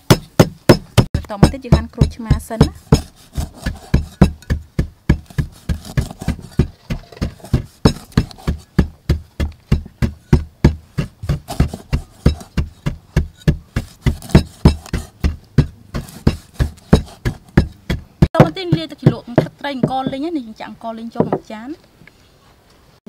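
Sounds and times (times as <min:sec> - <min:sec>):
cleaver chopping on wooden board: 0:00.0 - 0:20.2.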